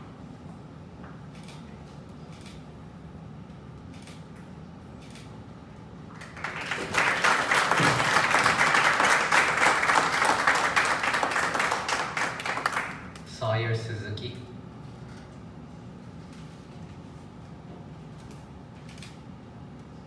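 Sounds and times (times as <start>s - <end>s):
audience applause: 6.1s - 13.1s.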